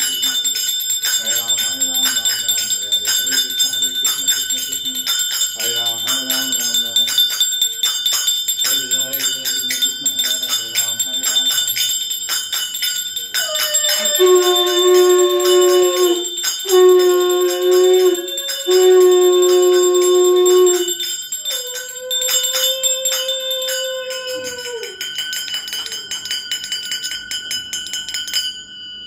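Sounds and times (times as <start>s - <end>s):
brass hand bell ringing: 0.0s - 29.0s.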